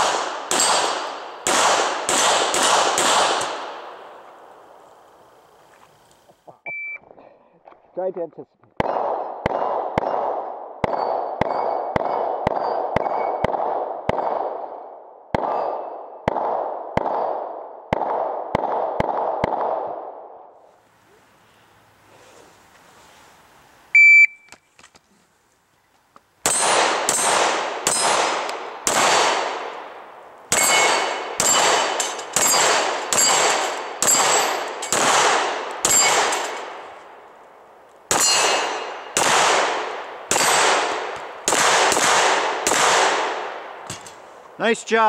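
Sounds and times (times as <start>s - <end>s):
pistol shots: 0.0s - 4.1s, 8.8s - 20.2s, 26.4s - 37.0s, 38.1s - 44.2s
shot timer beep: 6.6s - 7.0s, 24.0s - 24.5s
steel targets clanging: 30.5s - 35.0s, 35.8s - 36.8s, 38.1s - 39.0s.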